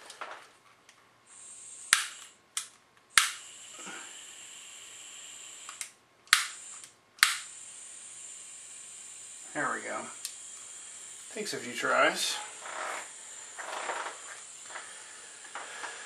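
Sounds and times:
gas hissing: 0:01.3 - 0:02.4, 0:03.1 - 0:16.0
igniter clicking: 0:10.2 - 0:10.7.

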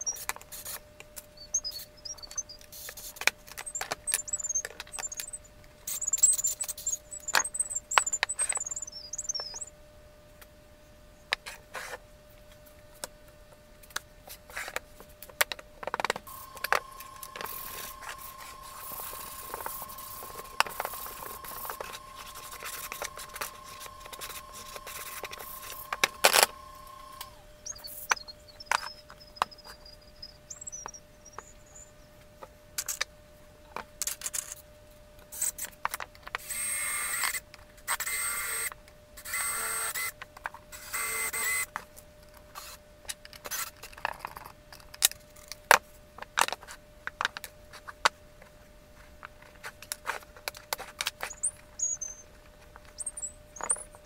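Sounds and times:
cordless drill motor whine: 0:16.2 - 0:31.9, 0:36.4 - 0:41.7.

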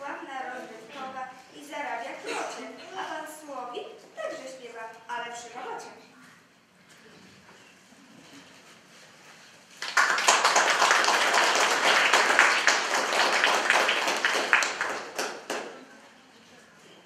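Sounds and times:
audience applauding: 0:09.8 - 0:15.8.

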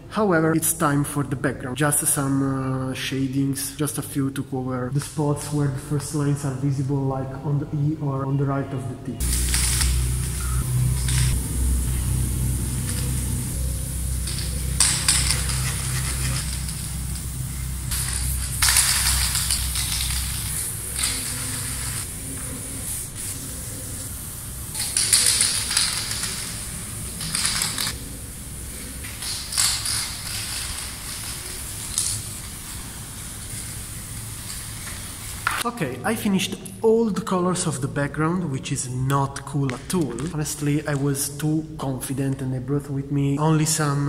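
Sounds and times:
low rumble: 0:09.2 - 0:22.0
spray paint can hissing: 0:09.2 - 0:35.6.

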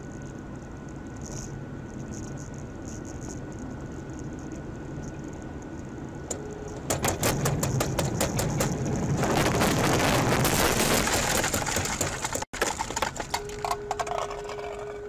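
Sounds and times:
rapid patter of clicks: 0:00.0 - 0:14.7
car road noise on wet road: 0:04.5 - 0:13.4.

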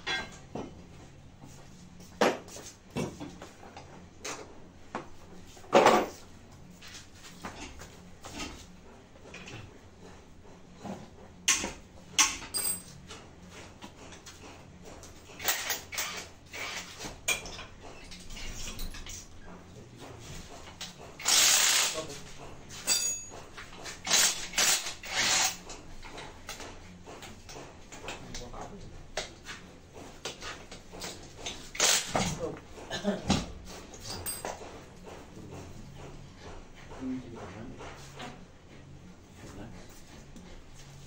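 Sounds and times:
tools and metal parts clinking: 0:00.0 - 0:00.4, 0:12.2 - 0:13.1, 0:15.4 - 0:19.3, 0:21.2 - 0:22.0, 0:22.7 - 0:25.6, 0:33.9 - 0:34.7.

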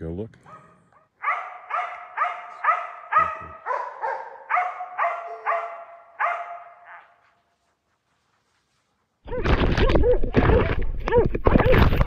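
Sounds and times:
dogs barking: 0:00.5 - 0:07.2.

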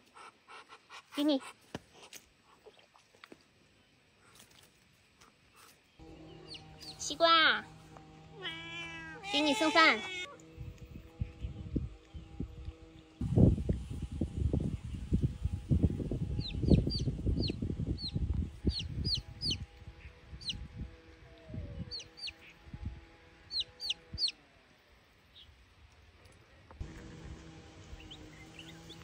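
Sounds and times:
chick peeping: 0:06.2 - 0:07.1, 0:16.4 - 0:19.6, 0:21.8 - 0:22.4, 0:23.5 - 0:24.4, 0:28.0 - 0:29.0.

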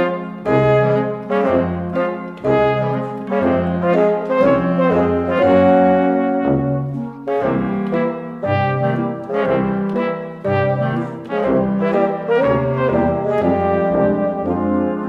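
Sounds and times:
brass theme music: 0:00.0 - 0:15.0.

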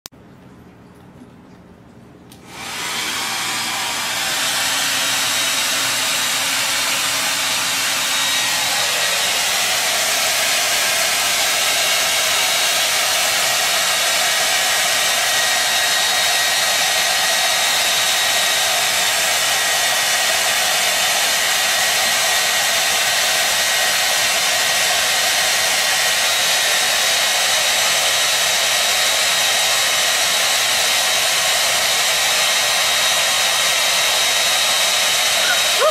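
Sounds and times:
hair dryer blowing: 0:02.3 - 0:35.9.

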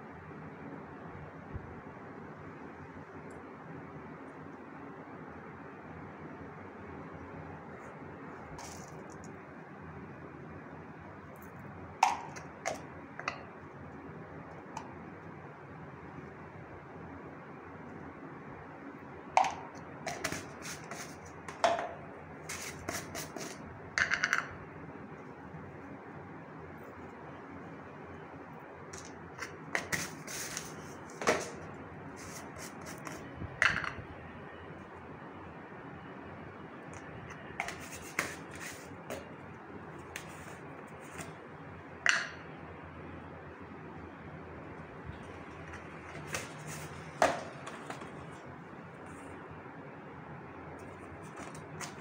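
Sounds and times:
spoons and containers clicking: 0:12.0 - 0:13.4, 0:19.4 - 0:21.8.

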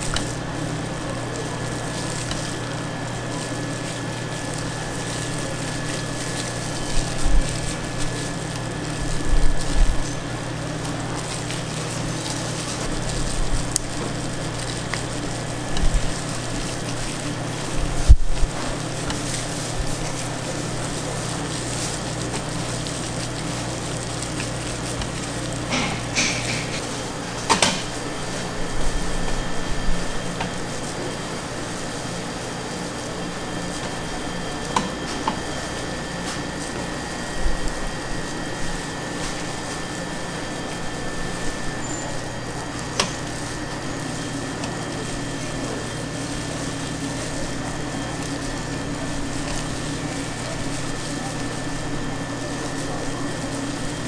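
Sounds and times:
kitchen equipment hum: 0:00.0 - 0:54.0
food preparation knocks and clatters: 0:24.4 - 0:28.0.

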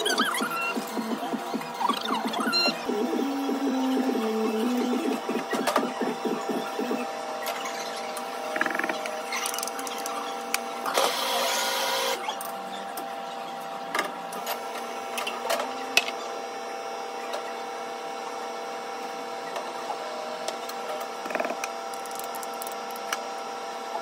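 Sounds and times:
machine hum: 0:00.0 - 0:12.2.

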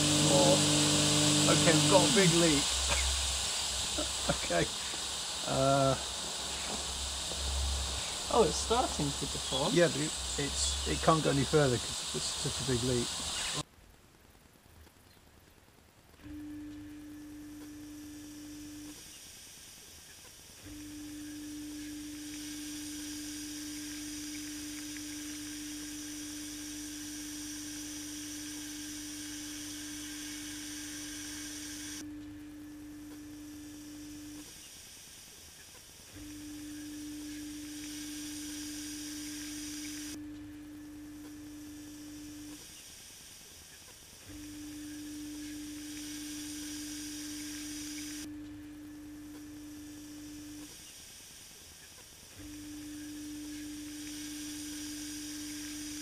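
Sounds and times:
pressure washer motor humming: 0:00.0 - 0:13.6, 0:20.6 - 0:34.6, 0:36.1 - 0:42.7, 0:44.2 - 0:48.3, 0:52.4 - 0:56.0
water spraying hiss: 0:00.0 - 0:13.6, 0:17.8 - 0:32.0, 0:33.4 - 0:40.2, 0:41.3 - 0:48.3, 0:49.6 - 0:56.0.

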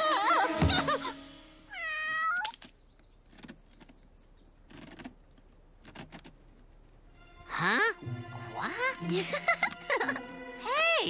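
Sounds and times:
cartoon cat meow: 0:01.7 - 0:02.5.

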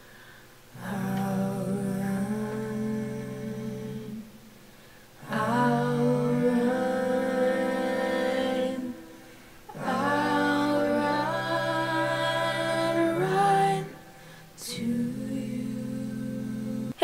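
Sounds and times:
voices singing long chords: 0:00.7 - 0:04.5, 0:05.2 - 0:17.0.

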